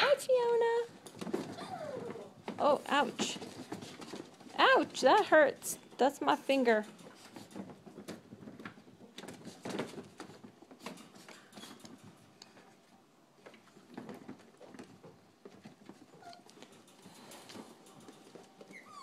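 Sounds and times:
paws pattering on tile floor: 0.5s - 5.6s, 6.7s - 19.0s.

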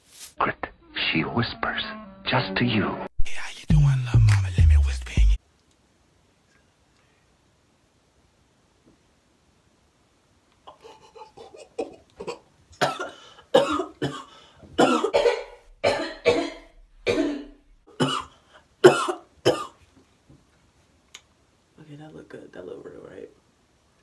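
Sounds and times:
person coughing harshly: 11.6s - 19.8s.

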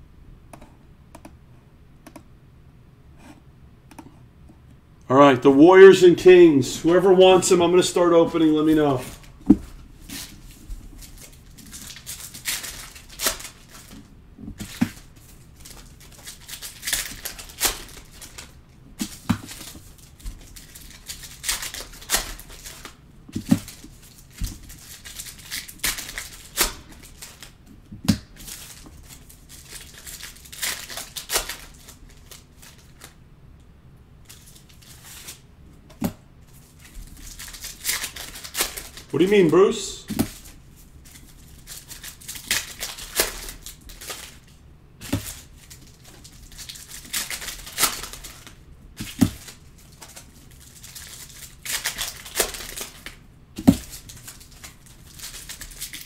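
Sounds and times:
wrappers rustling and crinkling: 5.8s - 33.2s, 34.3s - 35.4s, 36.4s - 56.0s.

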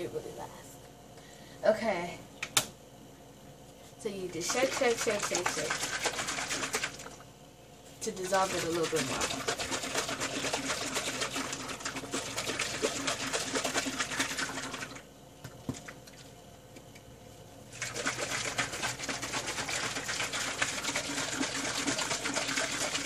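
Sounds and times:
liquid sloshing in plastic bottle: 4.4s - 7.2s, 8.2s - 15.0s, 17.7s - 23.0s.

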